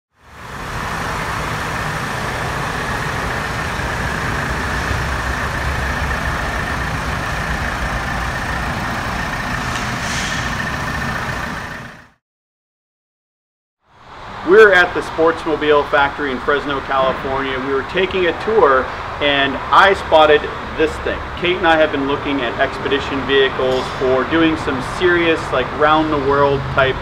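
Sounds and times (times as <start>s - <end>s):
diesel engine idling: 0.2s - 12.2s, 14.0s - 27.0s
short hiss: 9.6s - 10.5s.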